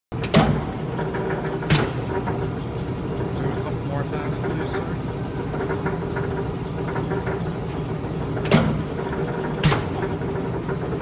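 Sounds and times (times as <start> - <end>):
press clunks: 0.2 - 0.8, 8.4 - 8.9, 9.5 - 10.2
punch press humming: 0.2 - 11.0.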